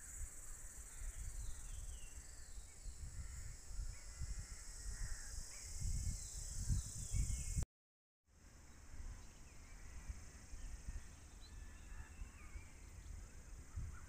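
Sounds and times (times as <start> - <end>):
high-pitched insect drone: 0.0 - 7.6
wind rumbling on microphone: 0.0 - 7.6, 8.8 - 14.0.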